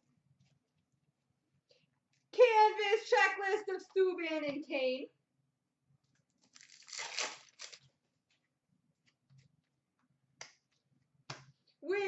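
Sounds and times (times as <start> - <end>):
wrapper crinkles and clicks: 6.4 - 7.9
wrapper tearing open: 6.4 - 7.9.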